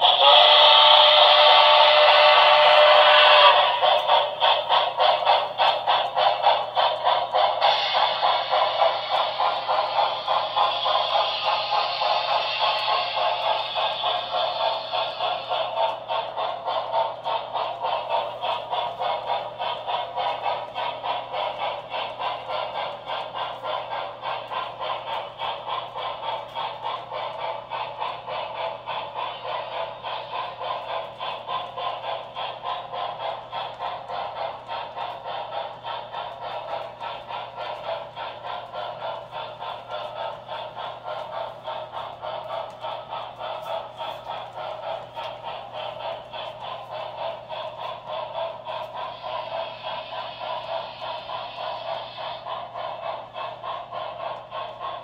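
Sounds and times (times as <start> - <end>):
model train clattering: 0.0 - 55.0.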